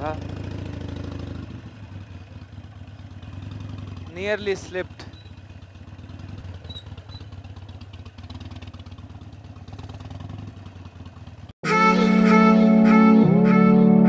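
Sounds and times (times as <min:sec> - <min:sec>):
motorcycle engine running: 0:00.0 - 0:11.6
background music with guitar: 0:11.6 - 0:14.0.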